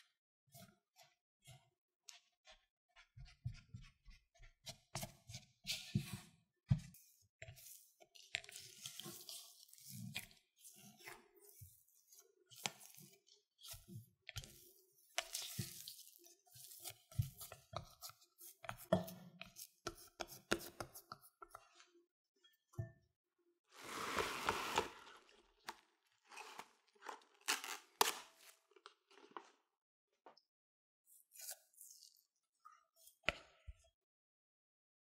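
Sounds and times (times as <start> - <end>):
spatula scraping dough in glass bowl: 23.8 - 25.4.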